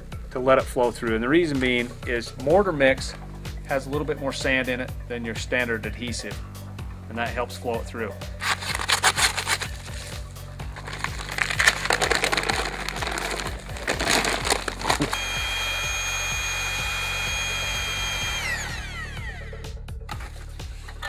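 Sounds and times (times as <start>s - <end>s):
gritty scraping and rustling: 8.4s - 15.2s, 20.1s - 21.0s
electric drill mixing whine: 10.9s - 19.8s.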